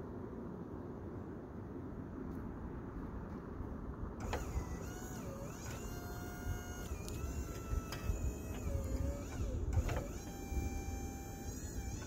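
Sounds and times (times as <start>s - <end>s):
low engine rumble: 0.0s - 12.0s
hydraulics whining: 4.2s - 12.0s.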